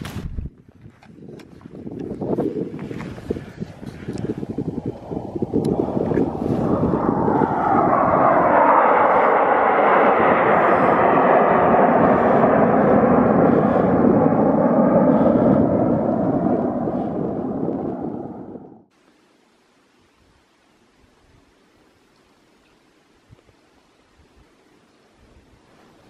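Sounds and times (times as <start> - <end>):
aircraft flying overhead: 2.3 - 18.9.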